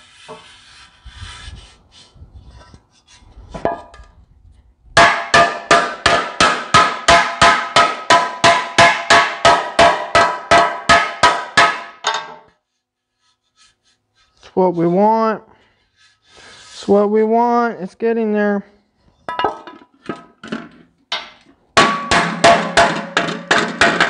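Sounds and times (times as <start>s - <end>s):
hammer beating sheet metal: 5.0s - 12.5s, 21.2s - 24.0s
ringing metal-on-metal blows: 21.8s - 24.0s.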